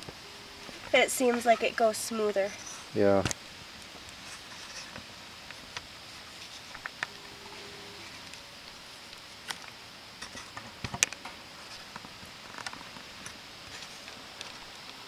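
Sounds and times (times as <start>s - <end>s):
knife scraping wooden stick: 2.5s - 2.9s, 4.2s - 5.0s.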